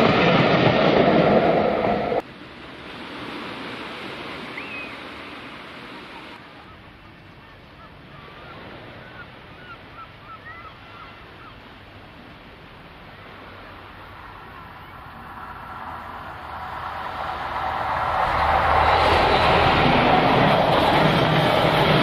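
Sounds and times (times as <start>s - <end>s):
sea surf on the shore: 0.0s - 22.0s
bird calls: 4.6s - 5.1s, 6.2s - 11.8s.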